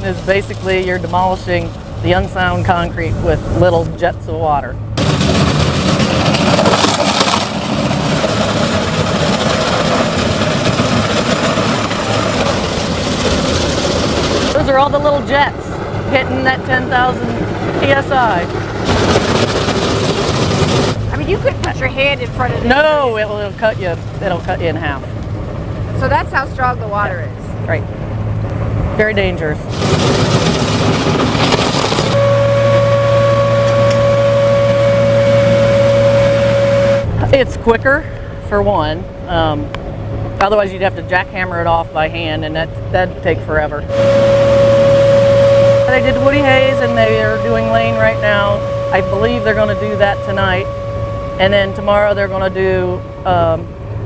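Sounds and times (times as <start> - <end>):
water jets hitting concrete: 0.0 - 24.9
heavy machinery running: 0.0 - 54.0.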